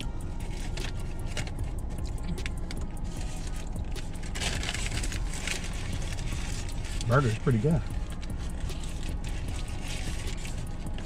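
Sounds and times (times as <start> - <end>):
low car interior hum: 0.0 - 11.0
paper bag crinkling: 3.2 - 11.0.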